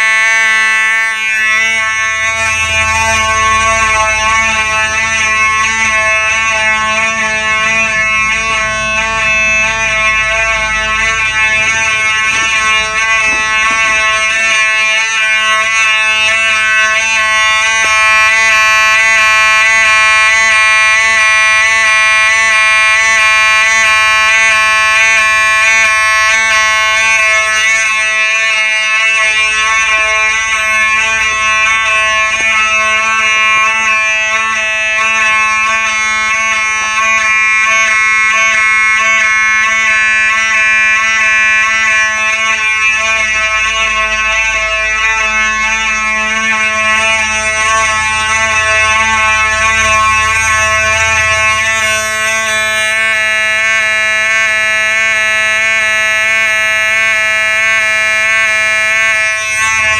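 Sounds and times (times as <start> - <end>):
fire alarm horn: 0.0 - 59.9.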